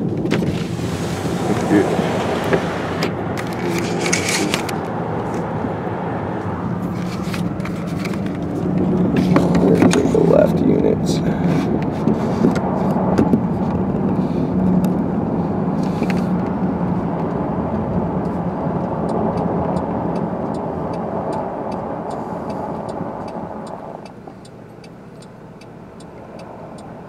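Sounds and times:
car engine and tyre noise: 0:00.0 - 0:27.0
faint regular ticking: 0:18.2 - 0:27.0.

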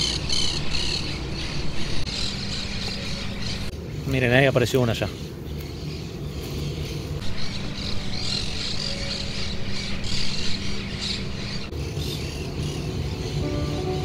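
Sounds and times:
birds chirping and squawking: 0:00.0 - 0:14.0.

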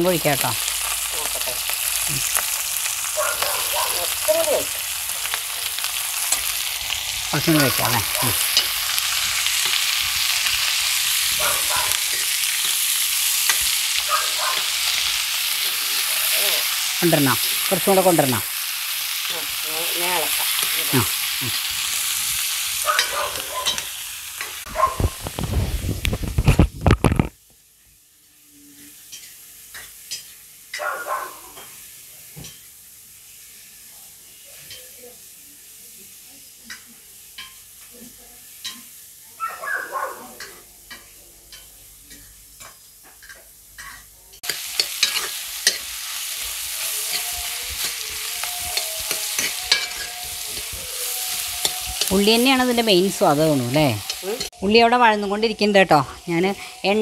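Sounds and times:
onions sizzling in oil: 0:00.0 - 0:57.0
metal spoon scraping pan: 0:07.6 - 0:17.7, 0:41.5 - 0:54.5, 0:56.2 - 0:56.9
spoon tapping pan: 0:40.4 - 0:45.9, 0:47.1 - 0:50.8, 0:51.4 - 0:52.8.

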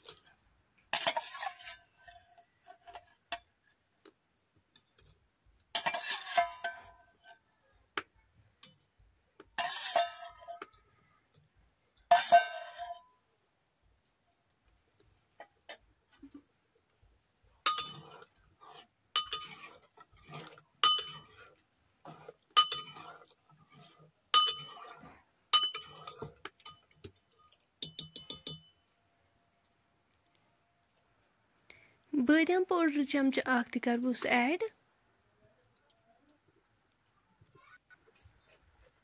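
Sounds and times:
spoon clinking in pot: 0:17.6 - 0:28.8.

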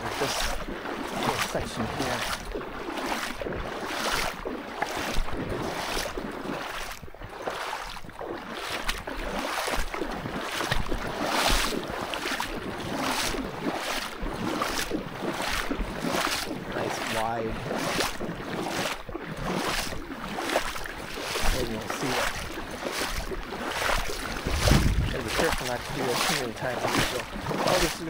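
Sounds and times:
footsteps swishing: 0:14.6 - 0:28.0.

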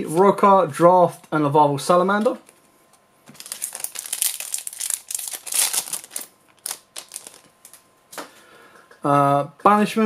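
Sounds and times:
foil wrapper crinkling: 0:03.3 - 0:07.8.

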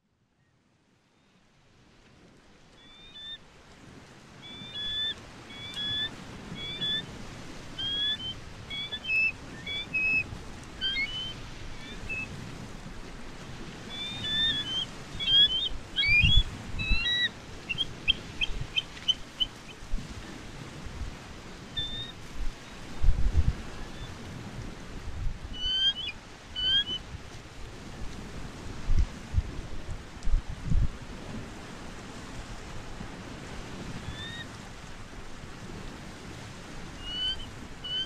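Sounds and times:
birds chirping: 0:04.4 - 0:07.1, 0:07.7 - 0:12.4, 0:13.8 - 0:19.8, 0:21.8 - 0:22.2, 0:25.6 - 0:27.0, 0:37.0 - 0:38.0.

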